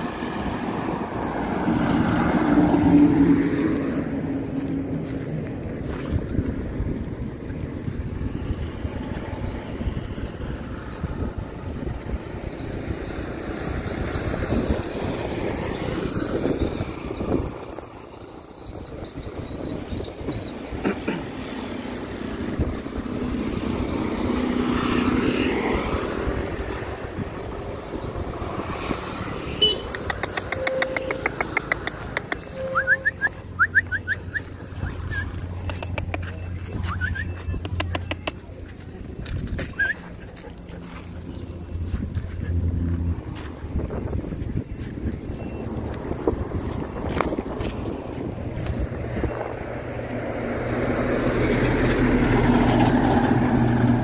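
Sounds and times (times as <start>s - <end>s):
wind rumbling on microphone: 0.0s - 20.9s, 21.8s - 30.6s, 34.2s - 54.0s
sharp clicks: 29.8s - 32.5s.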